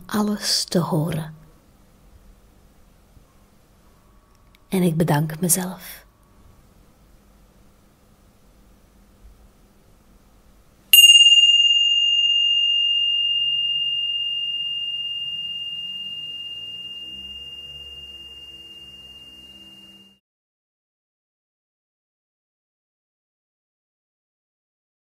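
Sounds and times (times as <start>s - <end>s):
small bell ringing: 11.0s - 20.2s.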